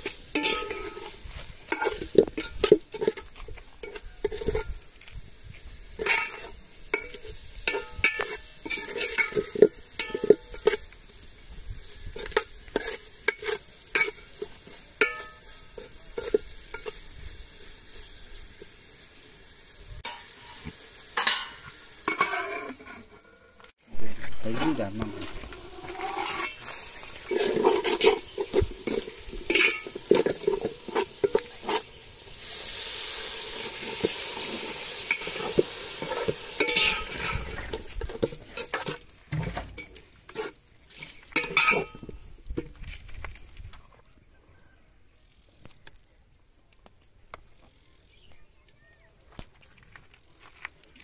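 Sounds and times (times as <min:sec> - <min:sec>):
metal ladle scraping a pot: 0:00.0 - 0:04.8, 0:06.0 - 0:11.2, 0:12.0 - 0:17.1, 0:20.0 - 0:42.1
sizzling hiss: 0:00.0 - 0:43.8.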